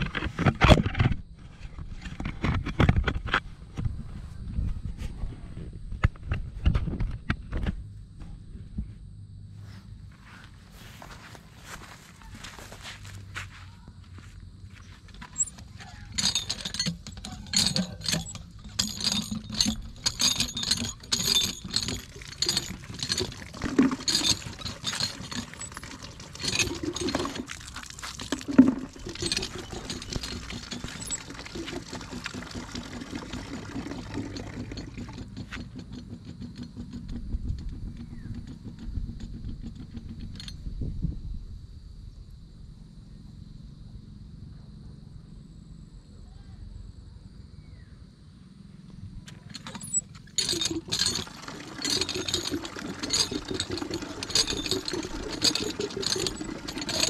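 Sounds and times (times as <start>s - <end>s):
water pump handle squeaking: 15.0s - 40.6s, 49.3s - 57.0s
water gushing: 21.6s - 35.2s, 49.8s - 57.0s.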